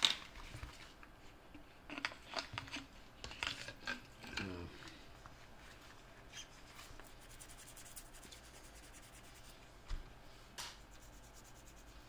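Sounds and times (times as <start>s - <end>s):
toothbrush scrubbing plastic: 7.1s - 9.6s, 10.9s - 12.0s.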